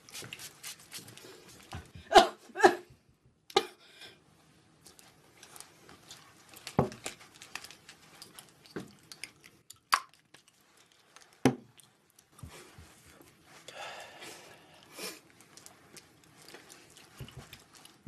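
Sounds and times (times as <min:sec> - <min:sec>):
rustling: 0:04.9 - 0:08.8, 0:15.2 - 0:18.0.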